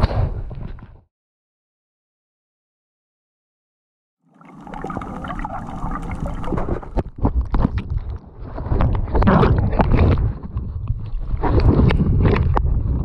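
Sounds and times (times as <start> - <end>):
water bubbling: 4.3 - 7.1
muffled underwater noise: 4.5 - 7.0.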